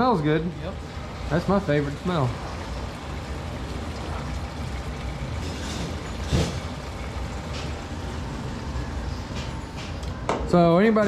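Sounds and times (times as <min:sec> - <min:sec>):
liquid gurgling: 0:00.0 - 0:10.0
liquid pouring into funnel: 0:00.7 - 0:08.8.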